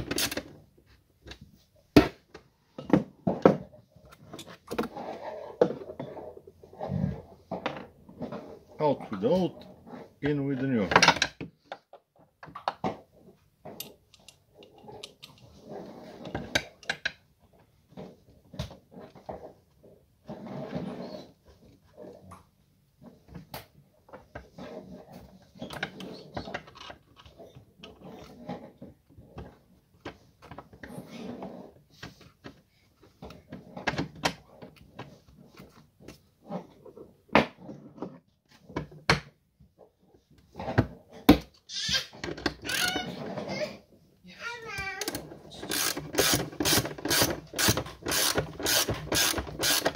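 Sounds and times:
metal parts clicking and knocking: 42.2s - 43.1s, 45.0s - 49.9s.

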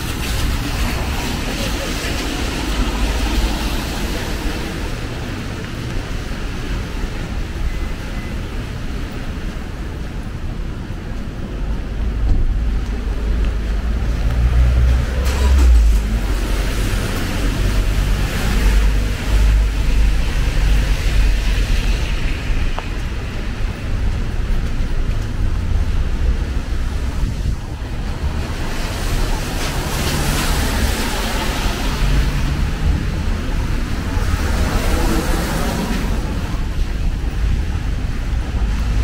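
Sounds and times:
car tyres hissing on wet road: 0.0s - 7.0s, 13.8s - 24.4s, 25.6s - 39.0s
low traffic rumble: 0.0s - 39.0s.

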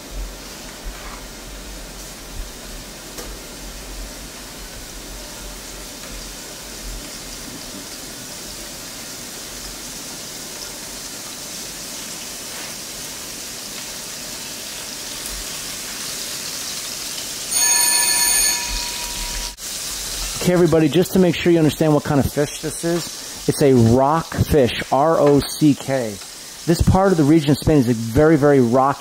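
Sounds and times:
fish frying in a pan: 0.0s - 17.6s, 19.5s - 29.0s
loud multi-pitch tone: 17.5s - 19.6s.

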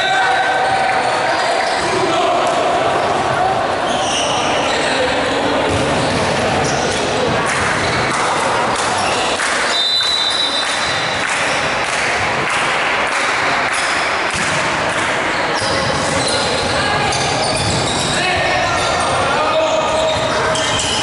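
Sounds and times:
players' voices: 0.0s - 21.0s
shoe squeak: 0.8s - 1.9s, 3.8s - 7.2s, 7.8s - 11.7s, 15.4s - 21.0s
volleyball hits and thuds: 14.3s - 15.0s.

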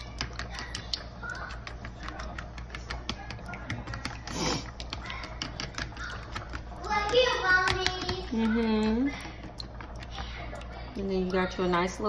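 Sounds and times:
whisk clicking against bowl: 0.0s - 10.6s.

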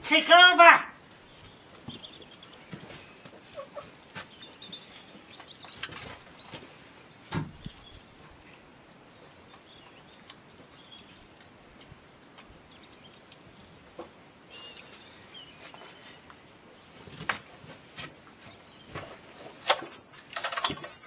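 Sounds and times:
faint outdoor background: 0.0s - 21.0s
bird chirps: 12.6s - 16.2s.

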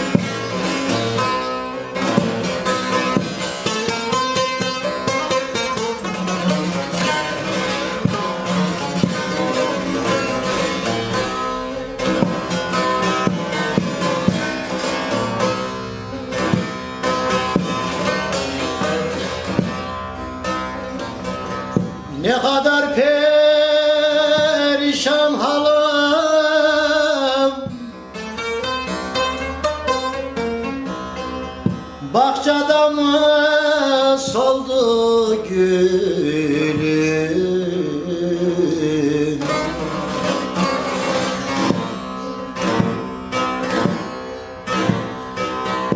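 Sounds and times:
long-necked lute strummed: 0.0s - 45.9s
person singing: 22.1s - 28.2s, 32.0s - 41.0s.

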